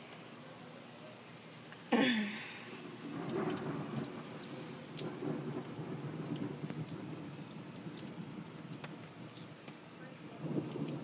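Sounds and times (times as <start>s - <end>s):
heavy rain pouring: 0.0s - 11.0s
low rumble of thunder: 2.3s - 11.0s.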